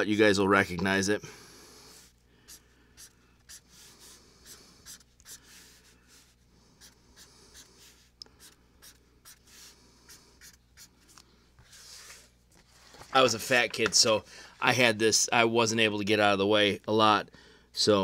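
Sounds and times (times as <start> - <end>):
pencil scratching on paper: 1.8 - 12.3.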